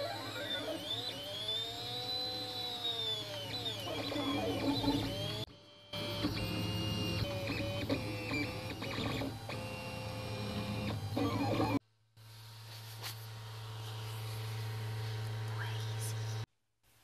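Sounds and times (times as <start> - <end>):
stepper motors whining: 0.0 - 11.8.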